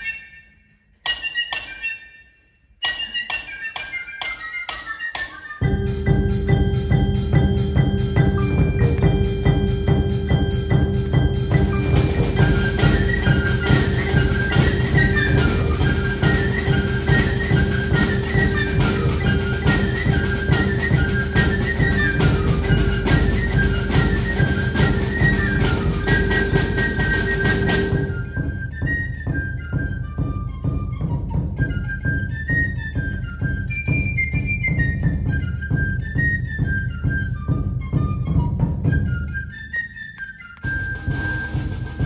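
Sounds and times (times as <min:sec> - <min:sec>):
high flute melody: 0:00.0 - 0:42.0
fast snare drumming: 0:05.9 - 0:29.7, 0:40.7 - 0:42.0.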